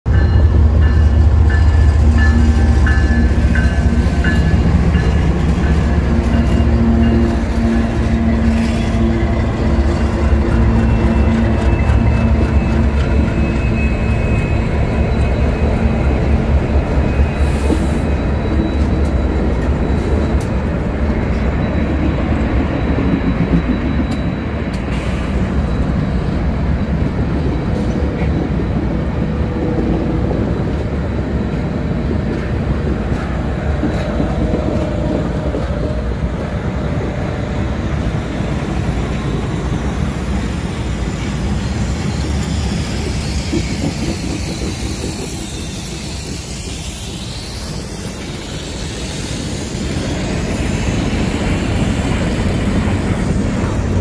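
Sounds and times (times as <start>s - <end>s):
diesel locomotive engines rumbling: 0.0s - 54.0s
high wheel squeal: 1.6s - 20.6s, 38.0s - 54.0s.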